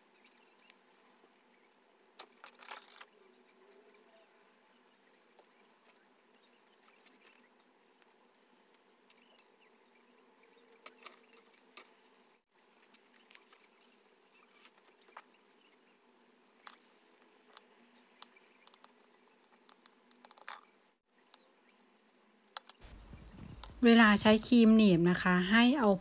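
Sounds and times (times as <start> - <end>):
light scratching on fabric: 22.8 - 24.8.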